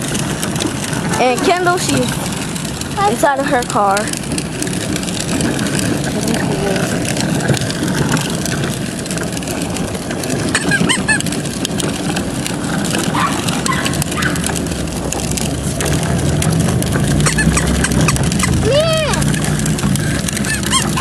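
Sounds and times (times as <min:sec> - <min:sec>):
plastic wheels rolling on asphalt: 0:00.0 - 0:21.0
small clicks and rattles: 0:00.0 - 0:21.0.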